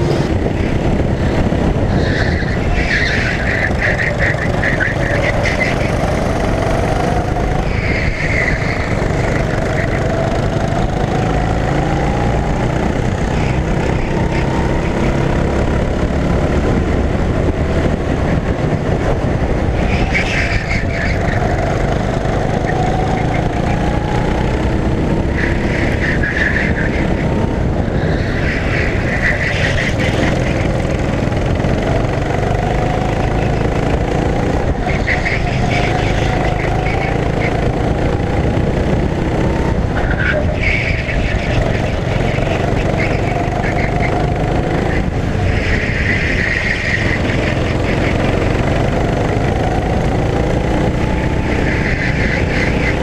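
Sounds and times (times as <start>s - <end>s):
go-kart engine accelerating: 0.0s - 53.0s
wind rumbling on microphone: 0.0s - 53.0s.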